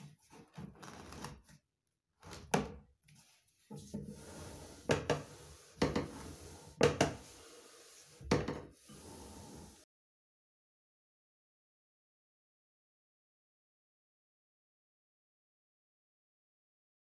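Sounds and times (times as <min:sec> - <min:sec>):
pipe scraping in wooden hole: 0:00.0 - 0:01.6, 0:02.2 - 0:09.8.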